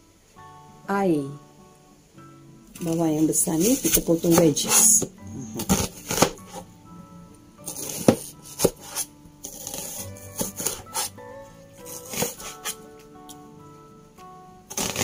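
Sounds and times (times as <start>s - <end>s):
soft background music: 0.0s - 15.0s
knife cutting onion on cutting board: 3.6s - 6.7s, 7.6s - 11.2s, 11.8s - 12.8s, 14.7s - 15.0s.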